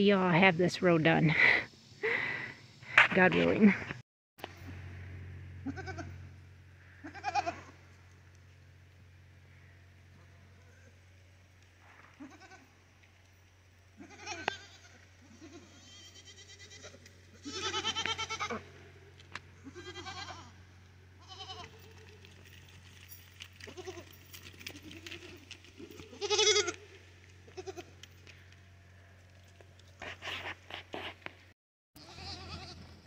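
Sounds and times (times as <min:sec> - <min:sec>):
goats bleating: 0:05.6 - 0:06.2, 0:06.9 - 0:07.8, 0:12.2 - 0:12.7, 0:14.0 - 0:18.9, 0:19.6 - 0:20.6, 0:21.2 - 0:22.5, 0:23.6 - 0:28.1, 0:32.0 - 0:32.8.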